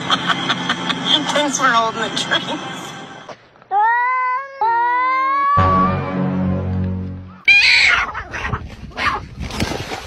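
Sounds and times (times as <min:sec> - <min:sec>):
cat meowing: 0:03.7 - 0:06.0.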